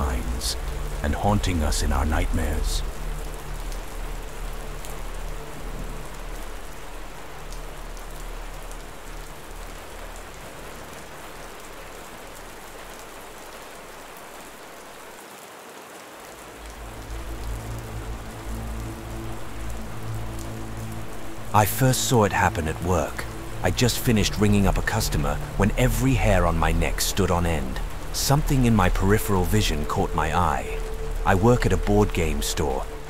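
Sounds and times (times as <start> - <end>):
low steady drone: 0.0 - 12.6, 16.7 - 33.0
raindrop ticks: 0.0 - 14.9, 16.4 - 33.0
steady rain hiss: 0.0 - 33.0.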